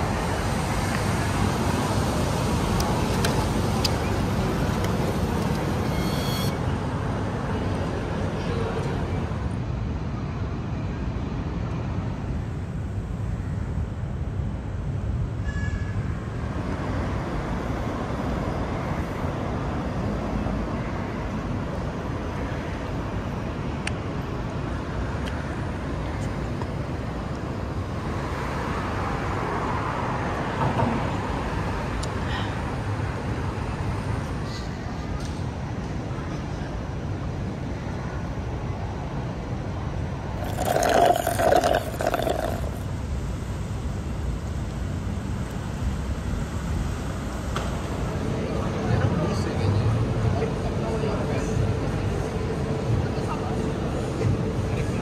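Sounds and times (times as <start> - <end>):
road traffic rumble: 0.0 - 9.6, 40.1 - 48.8
low rumble of street traffic: 0.0 - 55.0.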